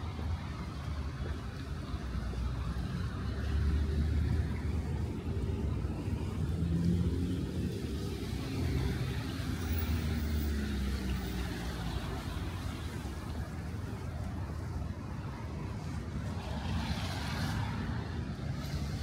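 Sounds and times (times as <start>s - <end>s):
tyre hiss on wet road: 16.3s - 19.0s.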